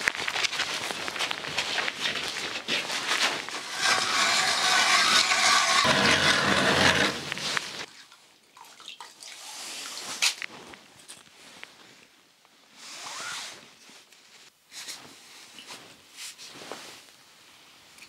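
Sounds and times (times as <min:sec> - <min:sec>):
ice auger grinding: 0:03.5 - 0:07.9.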